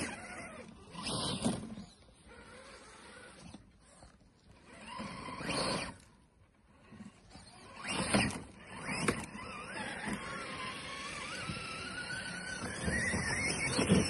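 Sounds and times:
tyres on leaves and snow: 6.7 - 14.0
electric motor whining: 6.9 - 14.0.

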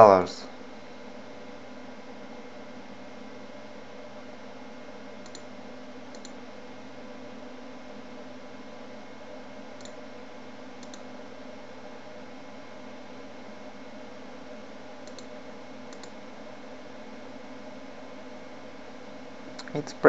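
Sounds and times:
steady hum and hiss: 0.0 - 20.0
faint computer mouse clicks: 5.2 - 5.5, 6.1 - 6.4, 9.8 - 10.0, 10.8 - 11.1, 15.0 - 15.3, 15.9 - 16.2.

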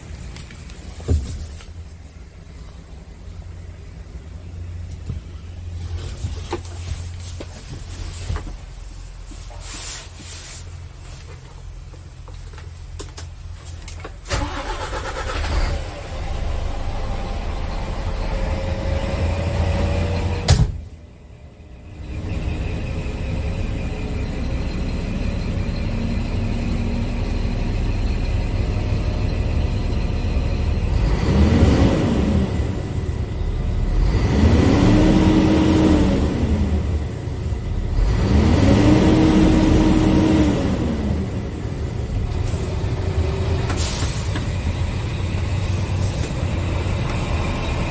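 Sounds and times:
truck diesel engine idling: 14.2 - 20.4, 21.0 - 31.1, 41.0 - 47.9
truck engine revving: 14.3 - 20.5, 21.9 - 47.9.

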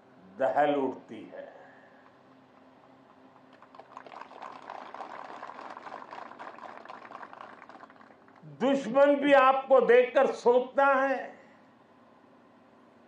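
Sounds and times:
faint audience applause: 3.5 - 8.6.

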